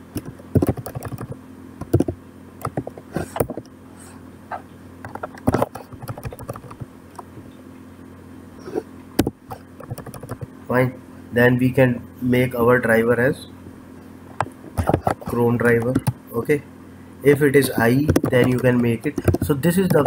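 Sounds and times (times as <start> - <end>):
steady low hum: 0.0 - 20.0
keyboard key clicks: 18.1 - 20.0.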